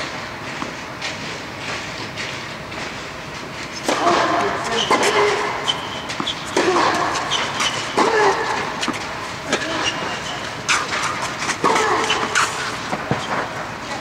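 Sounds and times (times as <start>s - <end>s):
tennis ball bouncing: 3.8s - 13.5s
racket striking ball: 3.8s - 13.6s.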